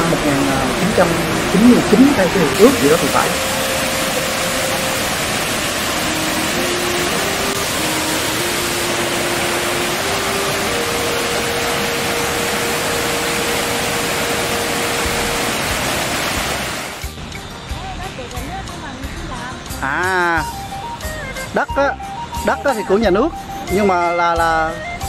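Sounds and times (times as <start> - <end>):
waterfall cascading over rocks: 0.0 - 17.1
faint slow melody: 0.0 - 17.9, 20.1 - 25.0.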